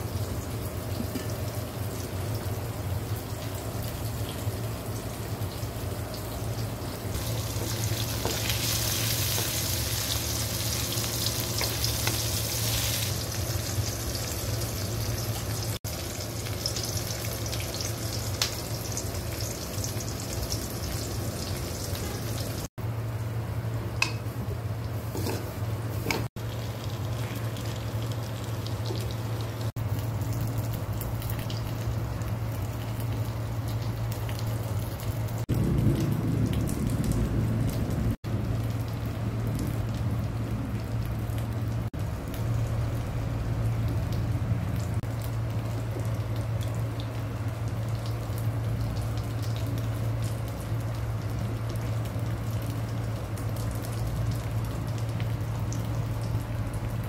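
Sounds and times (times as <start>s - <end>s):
food sizzling in a wok: 0.0s - 22.7s
steady low hum: 0.0s - 57.0s.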